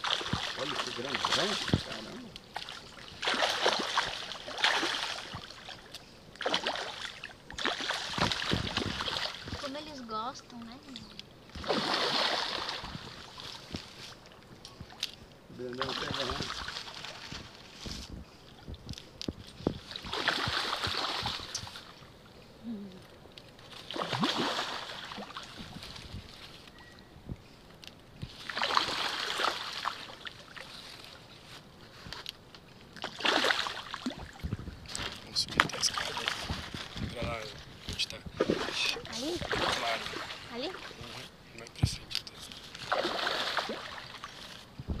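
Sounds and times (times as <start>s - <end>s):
fish splashing at water surface: 0.0s - 9.7s, 11.5s - 13.8s, 19.8s - 22.0s, 23.6s - 26.1s, 28.2s - 31.2s, 33.0s - 37.1s, 38.4s - 41.0s, 42.7s - 44.5s.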